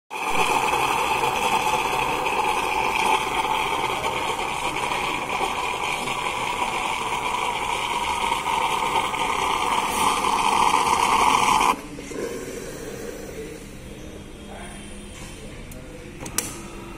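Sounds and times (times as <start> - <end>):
coffee machine steam hiss: 0.1 - 13.9
milk sputtering: 0.2 - 13.6.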